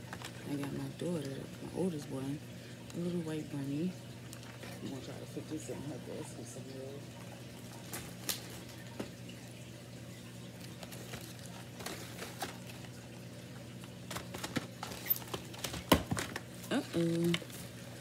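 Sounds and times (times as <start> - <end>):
low steady hum: 0.0 - 18.0
plastic wrap crinkling: 10.5 - 13.1, 13.8 - 18.0.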